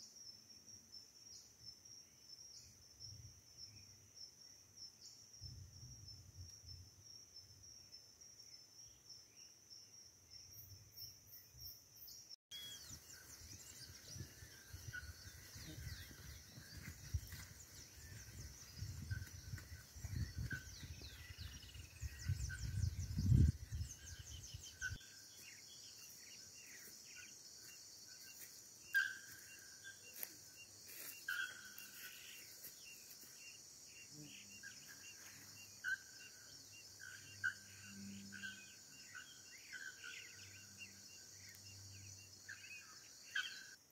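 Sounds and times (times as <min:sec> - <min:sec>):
insects droning: 0:00.0 - 0:43.9
birds chirping: 0:11.0 - 0:43.8.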